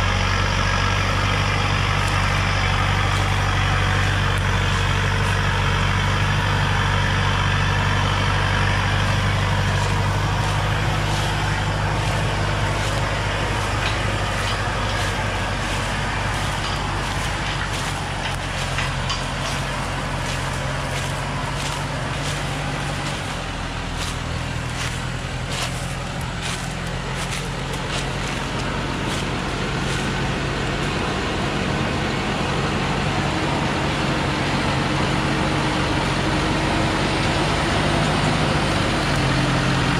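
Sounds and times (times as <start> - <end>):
dry leaves and twigs crackling: 0.0 - 31.7
diesel truck engine running: 0.0 - 39.9.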